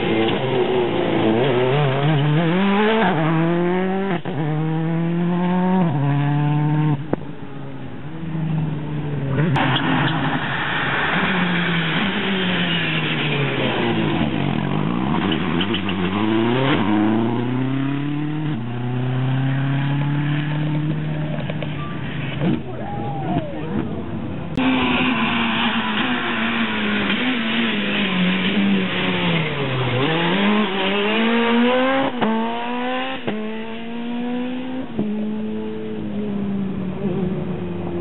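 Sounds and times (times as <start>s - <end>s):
rally car engine accelerating: 0.0s - 7.2s, 8.2s - 22.7s, 24.5s - 38.0s
second rally car engine: 0.0s - 38.0s.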